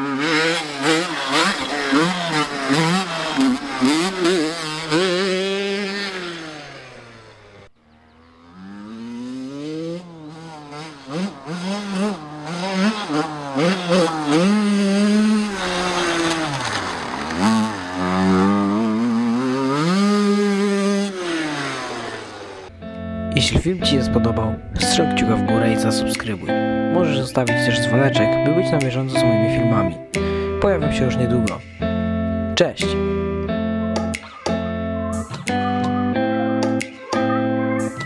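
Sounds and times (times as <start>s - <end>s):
dirt bike engine revving: 0.0s - 22.8s.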